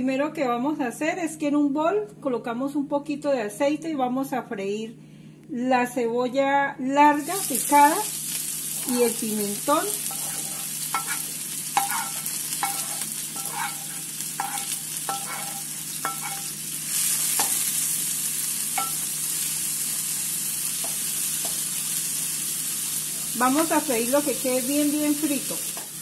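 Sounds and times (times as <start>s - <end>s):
vegetables sizzling in oil: 7.1s - 26.0s
wooden spoon knocking on pan: 11.8s - 13.8s, 14.4s - 16.4s, 18.8s - 19.0s.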